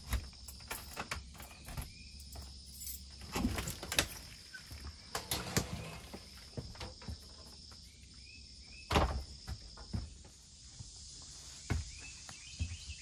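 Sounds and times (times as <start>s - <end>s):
high insect drone: 0.0s - 13.0s
door being pulled open: 5.1s - 6.4s.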